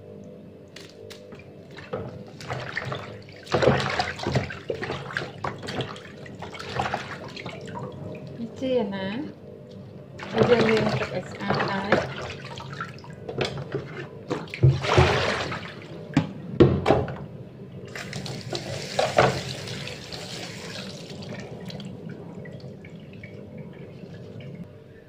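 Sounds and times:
running water: 10.2s - 15.9s.

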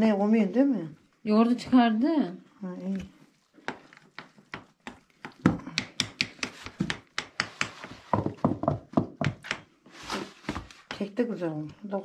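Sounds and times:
utensil tapping glass bowl: 3.0s - 9.7s.

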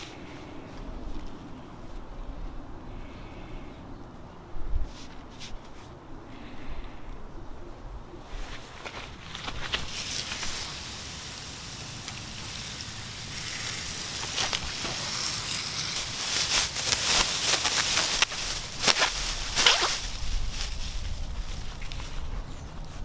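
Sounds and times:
plastic bag crinkling: 9.1s - 22.4s.

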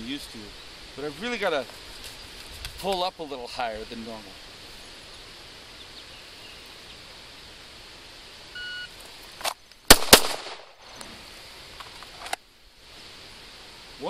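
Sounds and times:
pistol shots: 9.9s - 10.8s.

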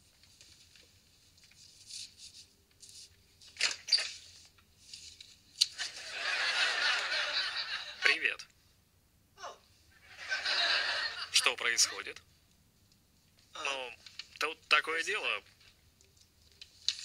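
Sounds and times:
faint rustling and scratches: 0.0s - 5.5s
studio audience laughter: 5.8s - 8.2s, 10.0s - 12.0s.

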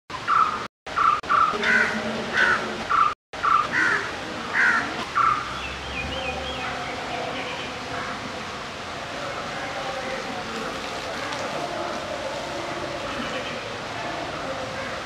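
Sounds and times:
crows cawing: 1.0s - 5.4s.

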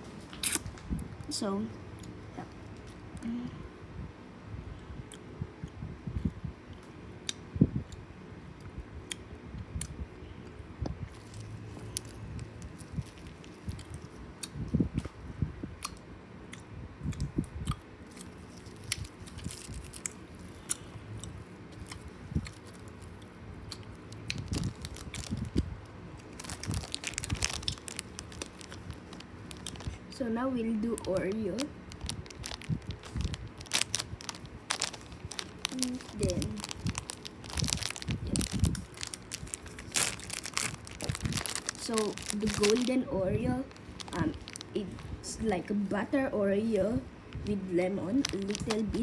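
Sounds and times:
person chewing candy: 15.8s - 25.6s, 26.2s - 30.1s, 31.8s - 42.9s, 43.7s - 45.2s.

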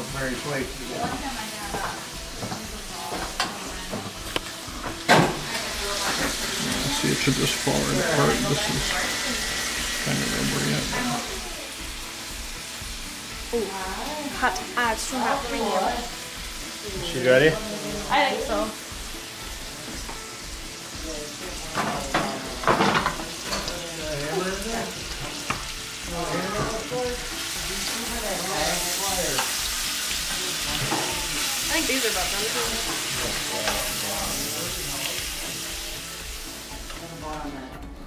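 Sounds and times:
fish sizzling in a pan: 0.0s - 37.4s.

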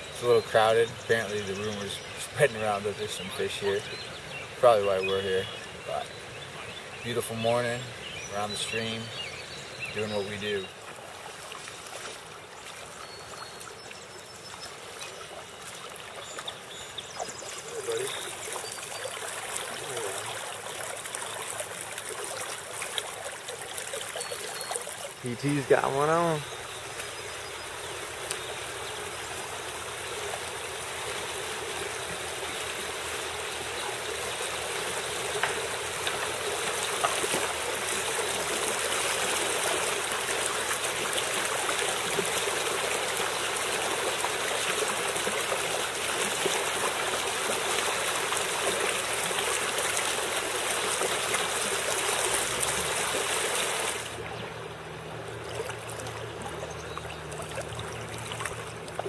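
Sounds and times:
river current rushing: 14.5s - 59.0s.

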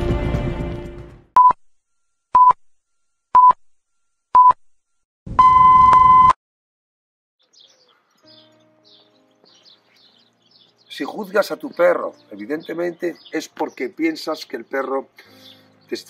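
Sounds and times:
intro music: 0.0s - 1.3s
long beep: 5.4s - 6.4s
short high beeps: 5.4s - 6.4s.

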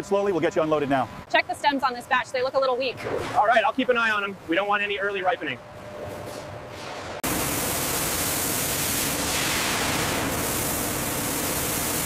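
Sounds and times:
steady rushing hiss: 7.2s - 12.0s.

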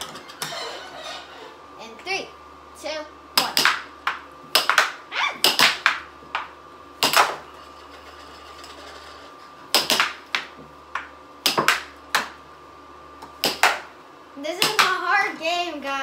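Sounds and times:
faint steady hum: 0.0s - 16.0s
air hockey puck clacking: 3.4s - 7.4s, 9.7s - 12.4s, 13.3s - 13.9s, 14.6s - 15.0s.

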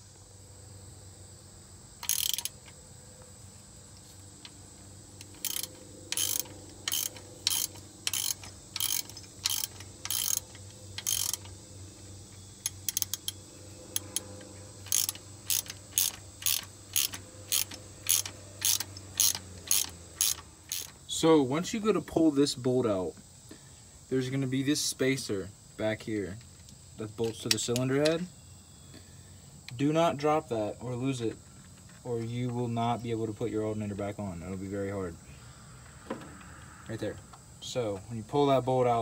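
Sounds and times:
hand ratchet clicking: 2.0s - 2.8s, 5.2s - 11.6s, 12.6s - 21.0s.

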